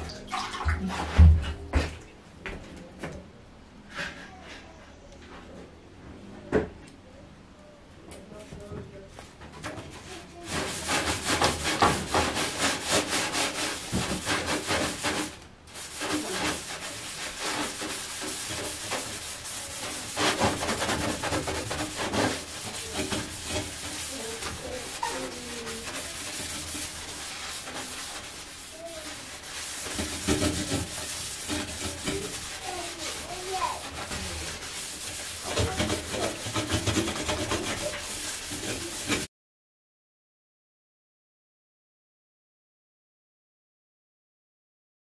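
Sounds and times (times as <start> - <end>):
sponge scrubbing stovetop: 0.0 - 1.9, 9.6 - 39.3.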